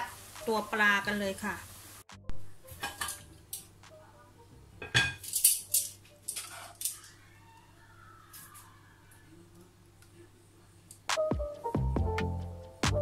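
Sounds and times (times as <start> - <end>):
metal utensils clinking on cookware: 2.8 - 3.7, 4.8 - 7.2.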